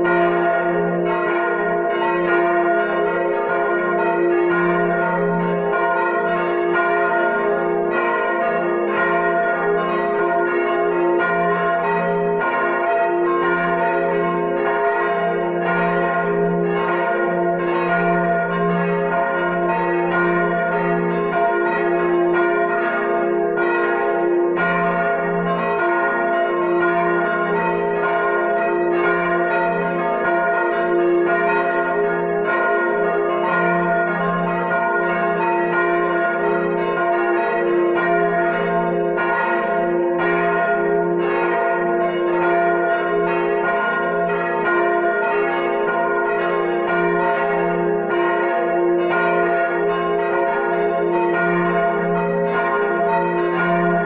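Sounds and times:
church bells pealing: 0:00.0 - 0:54.0
deep hum of large bell: 0:51.7 - 0:54.0.

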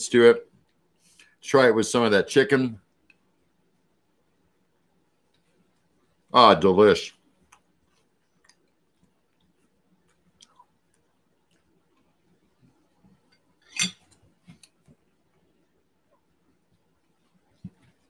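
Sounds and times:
quiet chewing: 0:07.4 - 0:13.4.

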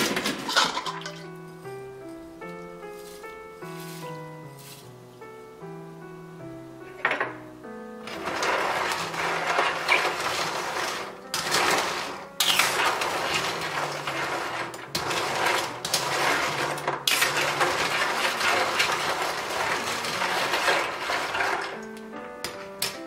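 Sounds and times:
clam shells clattering in a metal bowl: 0:00.1 - 0:01.2, 0:08.1 - 0:21.8.

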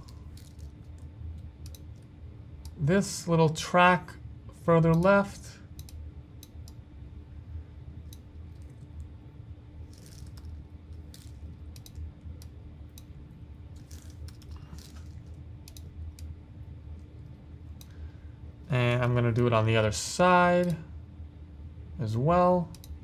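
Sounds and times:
steady low hum: 0:00.0 - 0:23.0
computer mouse clicks: 0:00.1 - 0:02.8, 0:05.8 - 0:06.8, 0:09.9 - 0:13.1, 0:13.8 - 0:16.3, 0:22.7 - 0:23.0.

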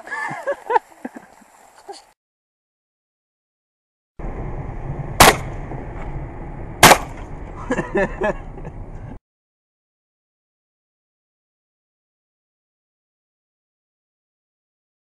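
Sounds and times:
low rumble in car: 0:04.2 - 0:09.2
shotgun shots: 0:05.2 - 0:05.6, 0:06.8 - 0:07.3.

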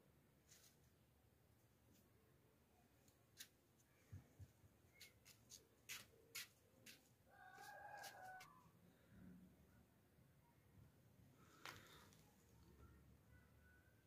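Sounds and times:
hands handling plants: 0:03.0 - 0:08.6, 0:11.4 - 0:12.7
faint pitched tone: 0:12.3 - 0:14.0.

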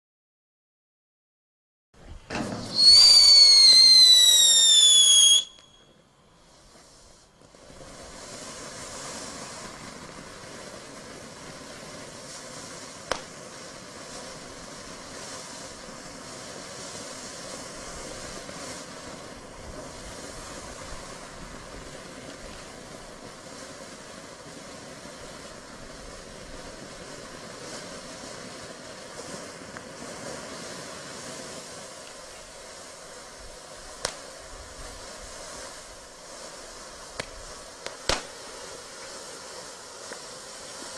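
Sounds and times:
firework sparks hissing: 0:02.0 - 0:40.9
sharp pop: 0:02.3 - 0:03.1, 0:13.1 - 0:13.4, 0:34.0 - 0:34.2, 0:37.2 - 0:38.3
firework whistle falling in pitch: 0:02.3 - 0:06.1.

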